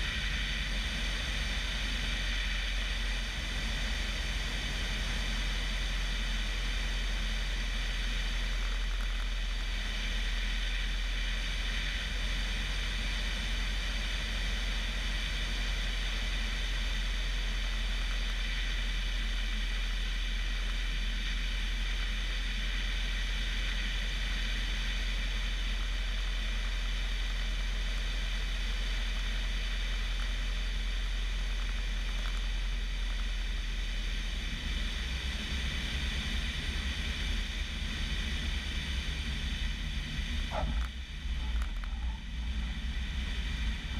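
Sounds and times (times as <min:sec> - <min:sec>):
aeroplane engine and propeller: 0:00.0 - 0:43.9.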